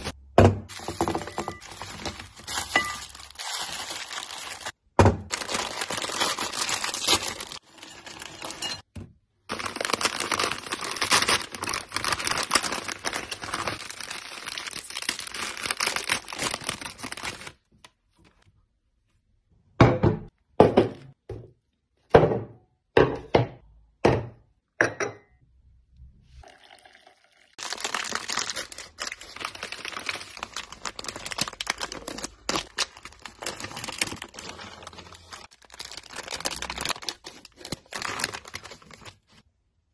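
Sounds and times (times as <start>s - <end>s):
plastic wrappers crinkling: 0.0s - 8.9s, 9.5s - 18.4s, 27.6s - 39.4s.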